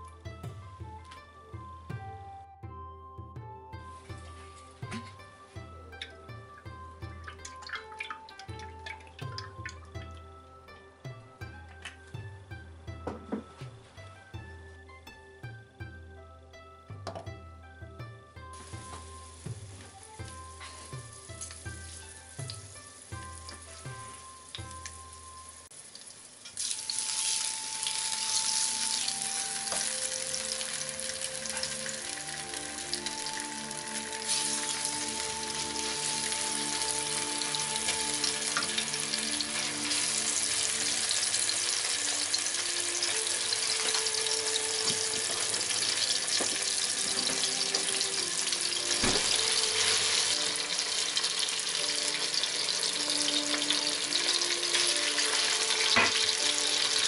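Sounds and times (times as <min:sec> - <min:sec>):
meat sizzling in a frying pan: 0:18.6 - 0:57.0.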